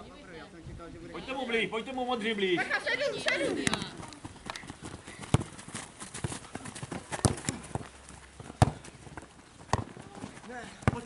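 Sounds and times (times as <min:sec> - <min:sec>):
ball being kicked: 0:03.5 - 0:11.0
boots running on grass: 0:03.7 - 0:11.0.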